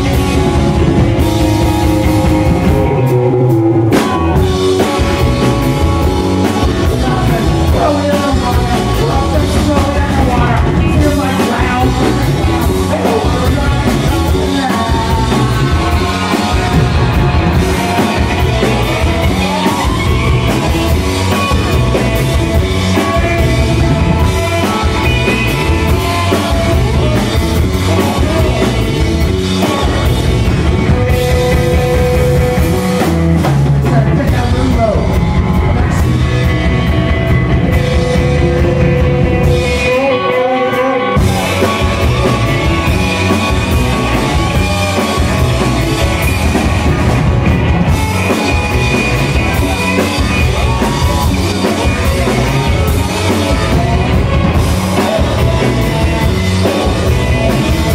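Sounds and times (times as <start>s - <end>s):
person singing: 0.0s - 33.2s, 37.7s - 57.9s
drum kit beat: 0.0s - 40.3s, 41.2s - 57.9s
electric guitars: 0.0s - 57.9s.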